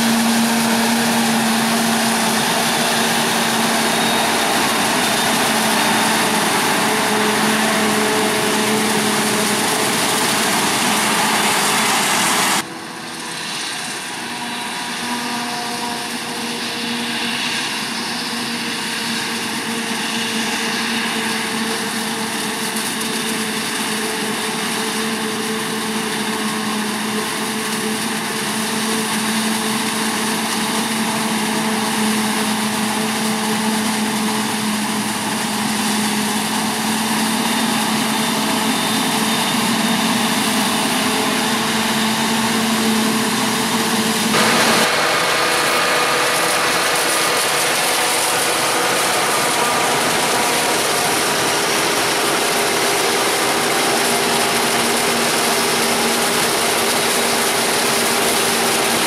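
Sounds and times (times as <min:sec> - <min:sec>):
harvester engine drone: 0:00.0 - 0:59.0
chopping hiss: 0:28.6 - 0:59.0.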